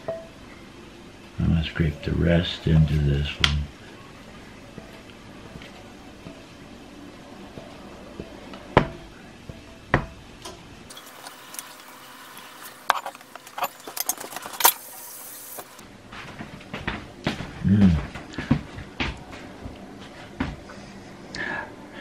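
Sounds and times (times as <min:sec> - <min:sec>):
spatula scraping metal bowl: 0:12.6 - 0:15.8.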